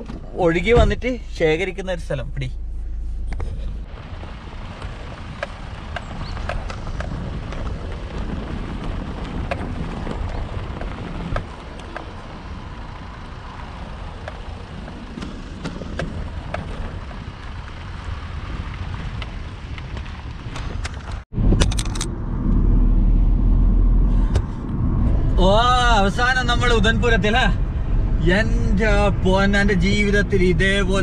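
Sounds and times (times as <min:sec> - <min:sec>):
motorcycle engine rumbling: 0:00.0 - 0:31.0
sharp clicks and knocks: 0:19.2 - 0:22.1.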